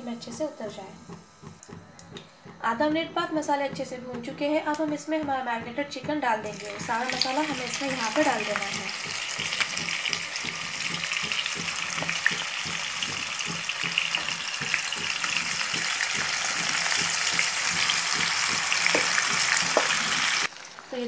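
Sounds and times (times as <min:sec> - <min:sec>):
chicken sizzling in oil: 0:06.5 - 0:21.0.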